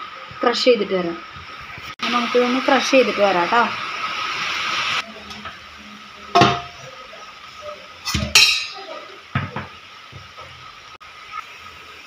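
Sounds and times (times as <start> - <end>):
metal kitchenware clanking: 6.3 - 6.8, 8.0 - 9.7.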